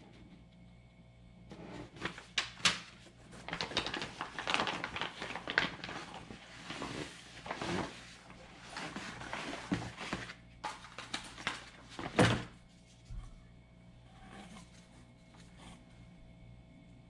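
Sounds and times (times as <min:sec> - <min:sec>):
packaging rustling and crinkling: 0:01.8 - 0:13.1.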